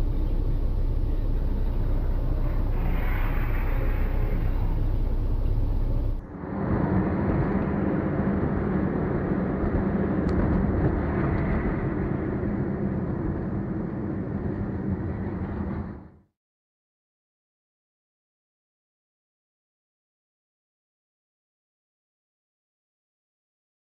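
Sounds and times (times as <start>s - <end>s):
car engine and road noise: 0.0s - 16.2s.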